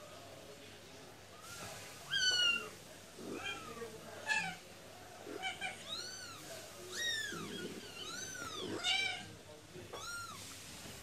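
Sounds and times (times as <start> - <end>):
kittens mewing: 2.1 - 4.6, 5.2 - 9.3.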